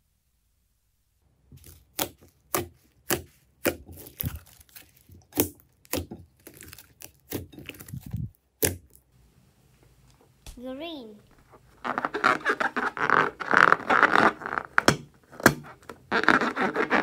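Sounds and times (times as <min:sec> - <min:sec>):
wet crackling: 0:01.5 - 0:09.1, 0:11.2 - 0:17.0
slime popping: 0:01.6 - 0:09.0.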